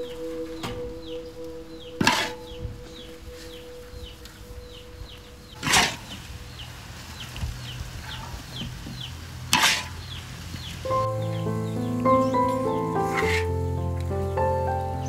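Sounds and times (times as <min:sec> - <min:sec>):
music with held notes: 0:00.0 - 0:07.4, 0:10.9 - 0:15.0
bird chirping: 0:00.0 - 0:09.3, 0:10.0 - 0:15.0.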